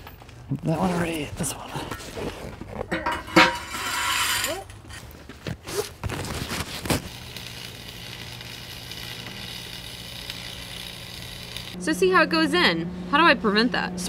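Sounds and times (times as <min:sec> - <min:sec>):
welder low hum: 0:02.7 - 0:05.0, 0:06.4 - 0:13.7
metal-on-metal scraping: 0:02.8 - 0:05.1
welding arc crackling: 0:05.7 - 0:11.8.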